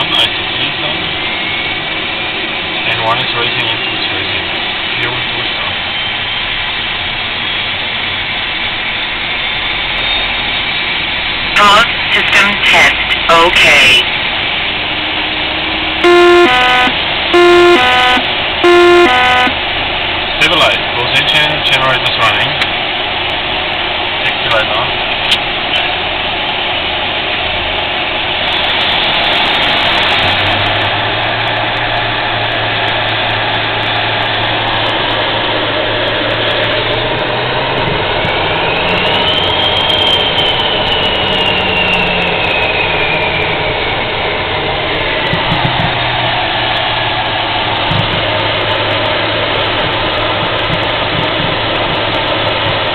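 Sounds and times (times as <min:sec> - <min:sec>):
jet engines whining: 0:00.0 - 0:52.9
rising engine whine: 0:14.0 - 0:52.9.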